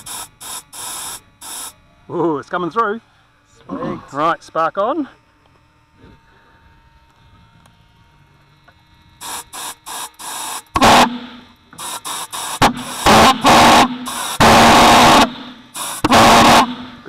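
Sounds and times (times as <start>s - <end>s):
compressed air blasts: 0.0s - 1.8s, 9.2s - 17.0s
pulsejet engine firing bursts: 0.0s - 1.8s, 9.2s - 17.0s.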